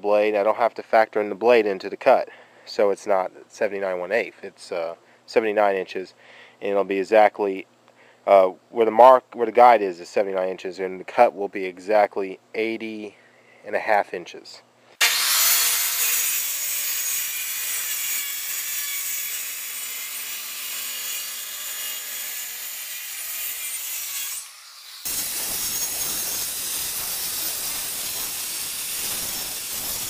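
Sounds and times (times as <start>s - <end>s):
circular saw cutting wood: 15.0s - 30.0s.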